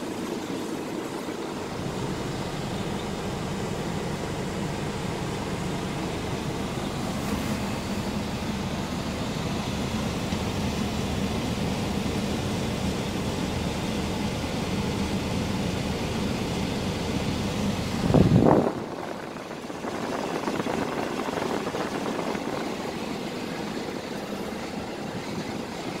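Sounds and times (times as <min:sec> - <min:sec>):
truck diesel engine idling: 0:00.0 - 0:26.0
loud rumble: 0:17.8 - 0:25.8.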